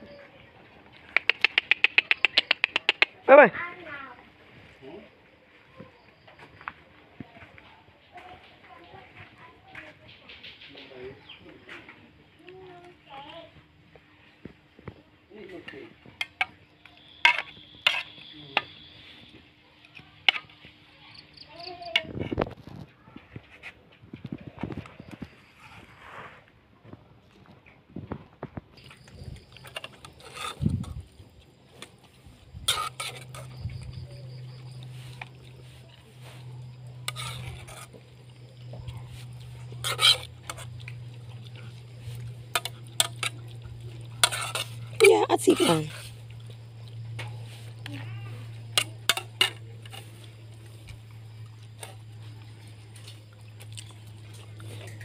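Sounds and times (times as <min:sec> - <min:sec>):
metal spoon scraping a pot: 0:16.2 - 0:19.0, 0:28.8 - 0:31.2, 0:31.8 - 0:52.0
low rumbling handling noise: 0:27.9 - 0:55.0
steady low hum: 0:28.8 - 0:55.0
metal spoon clinking on pot: 0:32.7 - 0:33.6, 0:42.5 - 0:46.0, 0:48.5 - 0:50.1.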